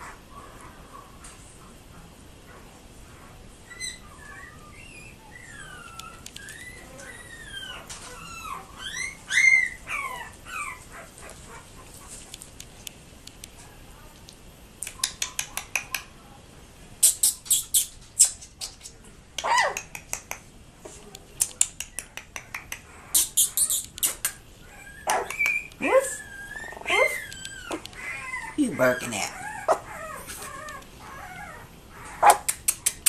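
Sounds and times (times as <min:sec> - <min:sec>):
puppies whimpering and squealing: 0:03.6 - 0:12.0, 0:22.0 - 0:32.5
sharp clicks: 0:05.8 - 0:06.6, 0:12.3 - 0:13.6, 0:14.2 - 0:16.1, 0:21.1 - 0:24.4, 0:25.1 - 0:25.8, 0:32.3 - 0:33.0.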